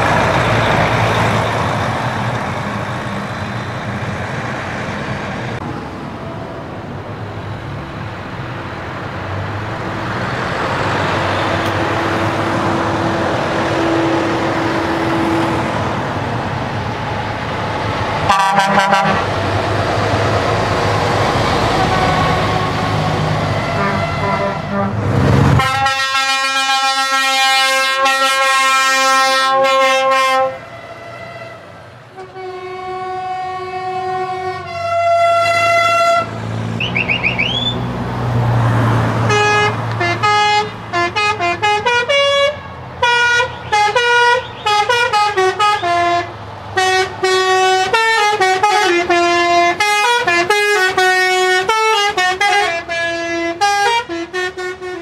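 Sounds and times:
engine noise rushing: 0.0 - 53.6
musical horn playing a tune: 18.3 - 19.3, 21.8 - 25.0, 25.6 - 31.6, 32.2 - 37.7, 39.3 - 55.0
truck air horn blasts: 18.3 - 19.3, 21.8 - 37.8, 39.2 - 55.0.

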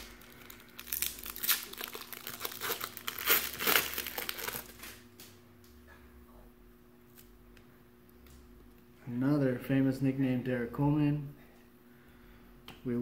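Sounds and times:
foil wrapper tearing and crinkling: 0.0 - 5.0.

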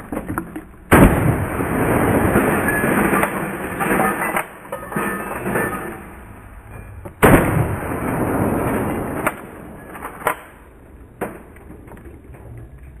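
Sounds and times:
dense crackling noise: 0.0 - 13.0
shotgun firing: 0.9 - 4.1, 7.2 - 10.5.

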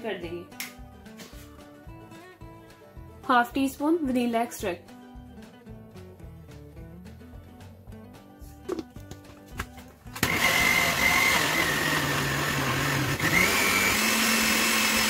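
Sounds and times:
blender motor running: 10.2 - 15.0.

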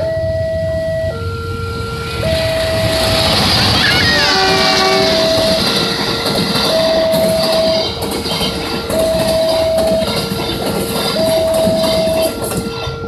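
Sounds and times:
level crossing alarm ringing: 0.0 - 13.0
train wheels clattering: 2.6 - 13.0.

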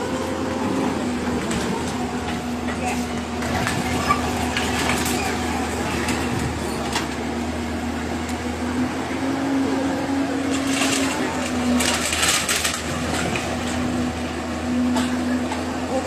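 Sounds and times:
diesel engine humming: 0.0 - 16.0
debris crunching and crashing: 10.6 - 13.8.

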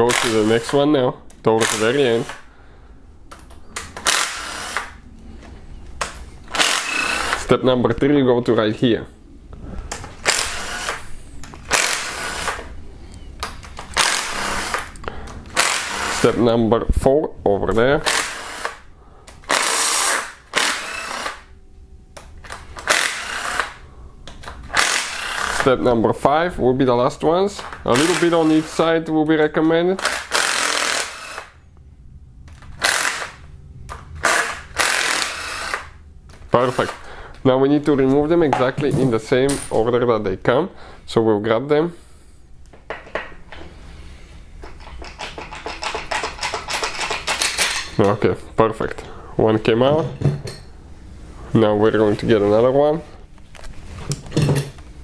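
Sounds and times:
cordless power driver bursts: 4.0 - 5.0, 6.5 - 7.5, 10.2 - 12.7, 13.9 - 16.2, 18.0 - 18.8, 19.4 - 21.5, 22.8 - 23.8, 24.7 - 25.6, 30.0 - 31.6, 32.8 - 33.4, 34.2 - 36.0
metallic clicking and clinking: 44.6 - 48.1.

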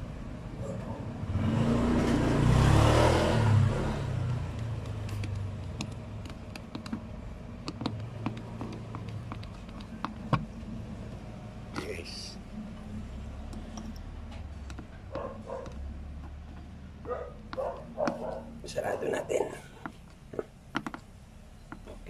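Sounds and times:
vehicle passing: 0.0 - 5.8, 10.5 - 19.8.

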